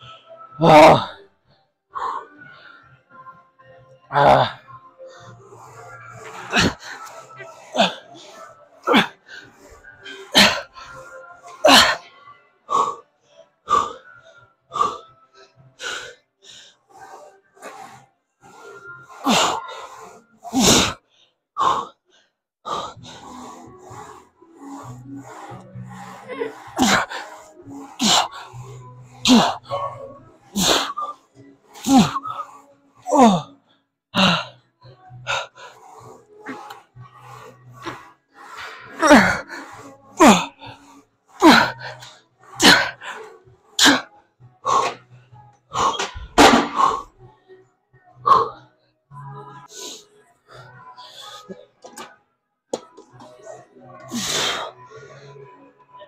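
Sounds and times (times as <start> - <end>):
man grunting with effort: 0.6 - 1.1
man exhaling and grunting: 31.8 - 33.5, 34.2 - 34.5.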